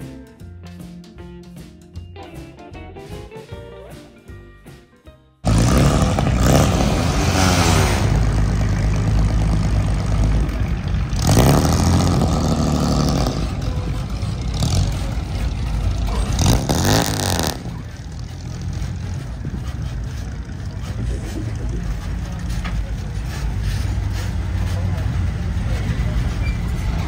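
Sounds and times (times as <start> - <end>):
cars driving past: 5.4 - 27.0.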